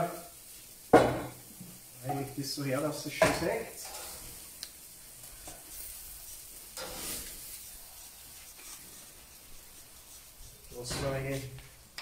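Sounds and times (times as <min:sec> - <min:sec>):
gas grill sizzling: 0:00.0 - 0:12.0
scrape on grill: 0:03.7 - 0:04.5, 0:05.1 - 0:11.8.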